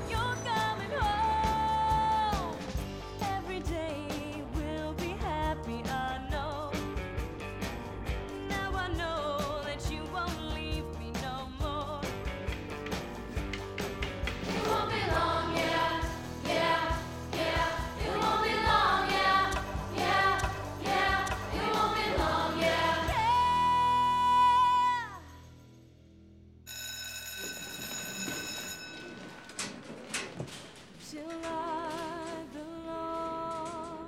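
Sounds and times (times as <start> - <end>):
rock song with woman singing: 0.0 - 7.2, 8.2 - 12.6
electric school bell ringing: 26.7 - 29.9.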